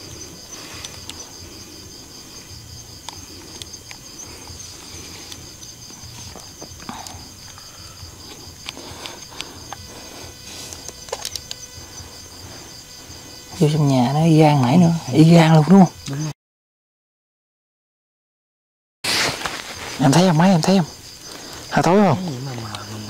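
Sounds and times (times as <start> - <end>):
insects trilling: 0.0 - 16.4, 19.1 - 23.0
footsteps: 19.1 - 20.0.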